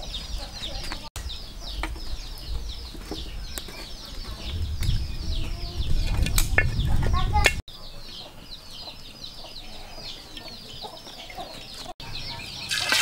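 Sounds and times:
chickens clucking: 5.3 - 13.0.

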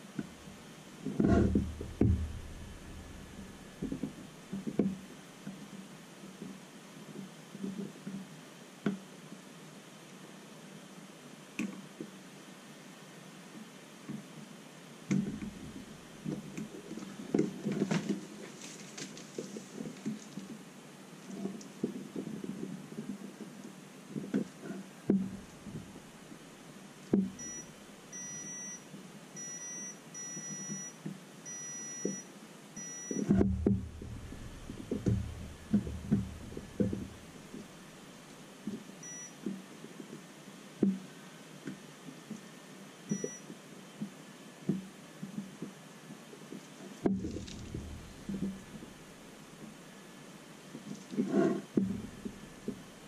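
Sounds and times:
multimeter short high beeps: 27.4 - 28.8, 29.4 - 33.3, 39.0 - 39.4, 43.1 - 43.4.

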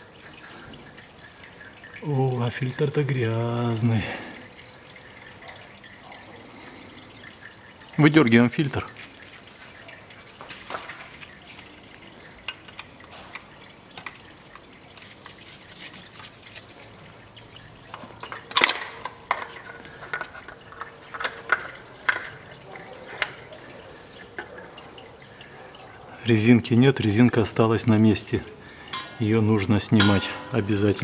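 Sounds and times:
fluid dripping: 0.0 - 31.0
filter clicks and scrapes: 9.0 - 23.6.

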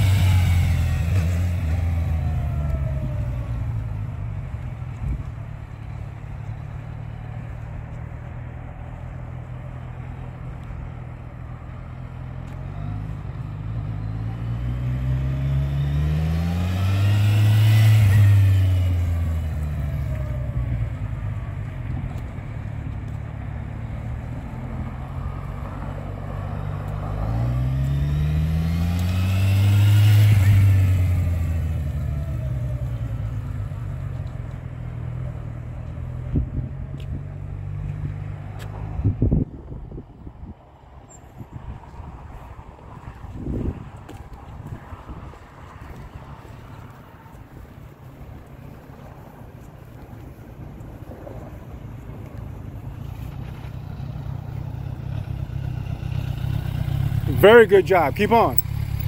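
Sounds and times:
motorcycle engine passing by: 0.0 - 4.2, 12.0 - 21.1, 24.0 - 34.2, 51.2 - 59.0.

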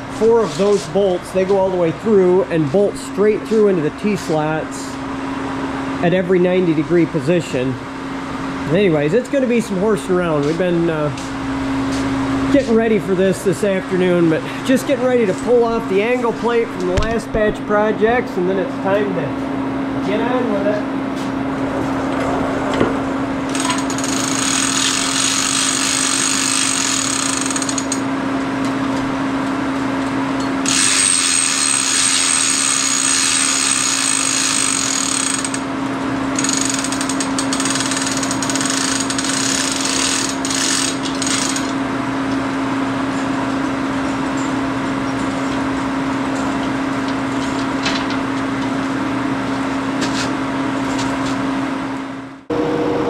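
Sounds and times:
steady hum: 0.0 - 23.5, 51.6 - 53.0
hoist chain rattling and clicking: 23.5 - 28.0, 30.8 - 35.6, 36.4 - 41.8.

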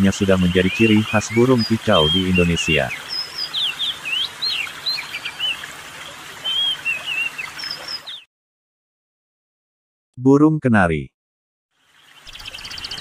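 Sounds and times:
bird singing whistles and chirps: 0.5 - 5.6, 6.4 - 8.3, 12.1 - 13.0.

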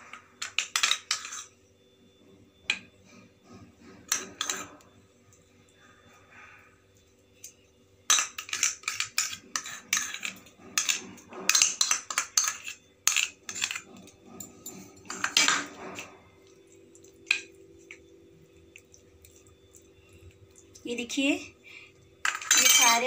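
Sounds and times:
metal spoon scraping steel dish: 4.1 - 4.8, 8.1 - 16.0.

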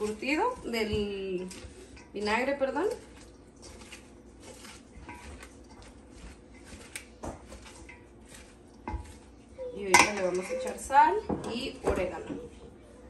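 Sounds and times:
tongs clicking on metal bowl: 0.0 - 9.2, 9.8 - 11.7
wet slaw rustling: 0.0 - 9.9.

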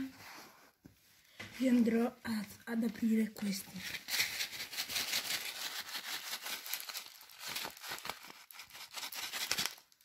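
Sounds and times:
plastic packet crinkling: 3.7 - 10.0.

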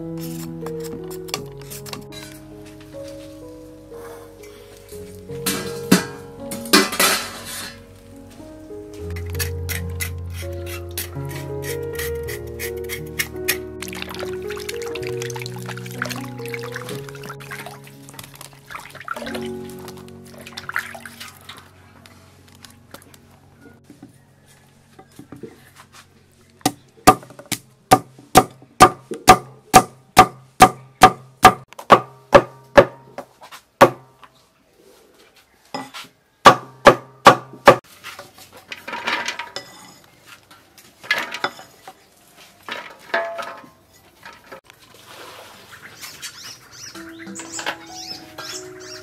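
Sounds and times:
cleaver chopping on wooden block: 26.7 - 33.0, 36.5 - 37.8.

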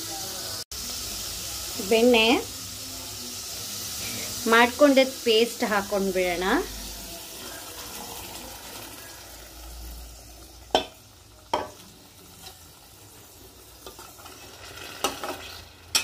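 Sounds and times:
paneer sizzling in ghee: 0.0 - 16.0
metallic knocks on steel bowl: 10.7 - 11.8.

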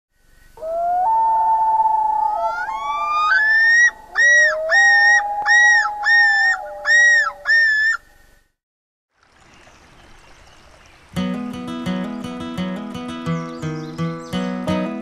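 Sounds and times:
loon yodel: 0.6 - 8.1
loons wailing: 0.6 - 8.2.

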